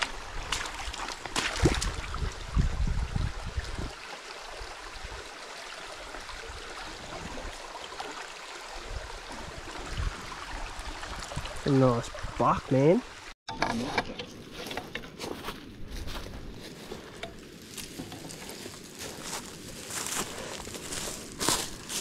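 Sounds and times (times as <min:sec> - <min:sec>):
wading splashes: 0:00.0 - 0:02.5
creek water trickling over rocks: 0:00.0 - 0:13.4, 0:16.6 - 0:22.0.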